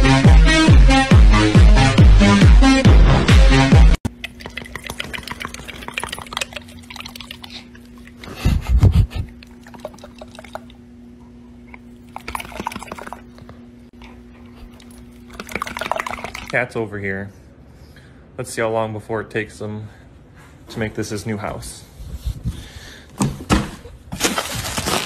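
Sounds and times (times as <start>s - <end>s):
dog jowls flapping wetly: 12.1s - 13.4s, 14.8s - 16.6s.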